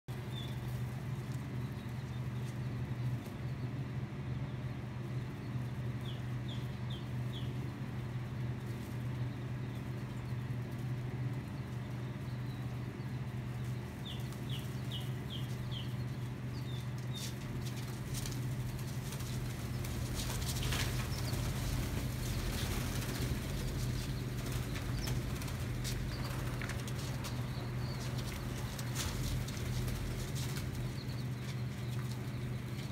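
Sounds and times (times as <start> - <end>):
low hum: 0.1 - 32.9
quail chirping: 4.5 - 10.9, 11.6 - 32.9
wings fluttering: 5.6 - 32.9
feet scratching wood shavings: 17.1 - 32.2.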